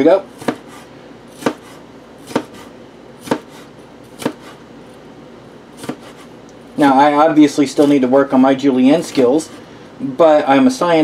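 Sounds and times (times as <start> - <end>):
knife chopping on cutting board: 0.3 - 4.6, 5.8 - 6.3.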